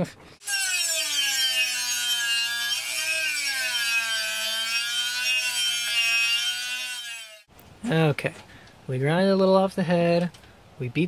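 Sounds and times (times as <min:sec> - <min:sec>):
rotary tool grinding metal: 0:00.4 - 0:07.5.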